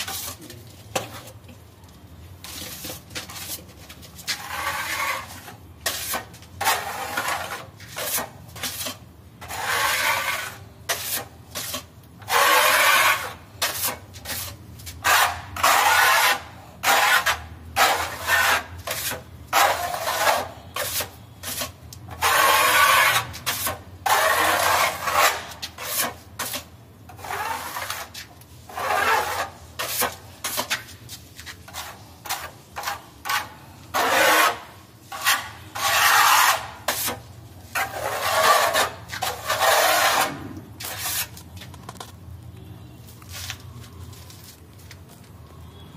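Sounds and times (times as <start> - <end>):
putty knife scraping wall: 4.2 - 30.9, 31.7 - 41.4.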